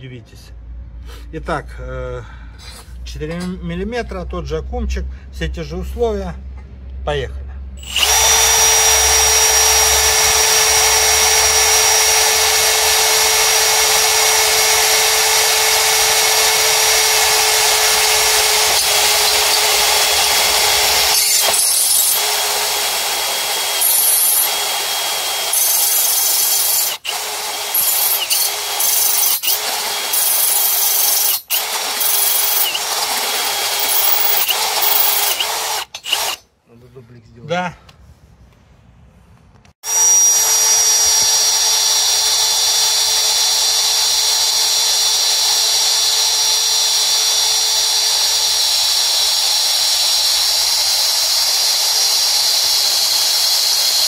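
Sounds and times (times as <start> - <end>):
cordless drill motor whine: 7.8 - 36.4, 39.8 - 54.0
drill bit grinding through metal: 7.8 - 36.4, 39.8 - 54.0.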